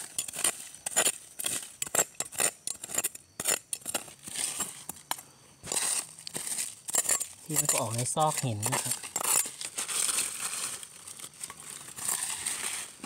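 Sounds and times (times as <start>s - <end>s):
metal spoon scraping in gritty soil: 0.0s - 13.0s.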